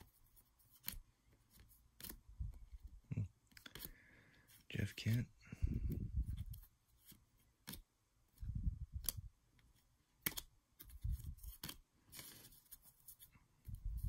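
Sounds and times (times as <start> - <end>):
cards snapping and flicking: 2.0 - 2.2, 9.0 - 9.3, 10.2 - 12.4
card rustle: 9.0 - 14.0.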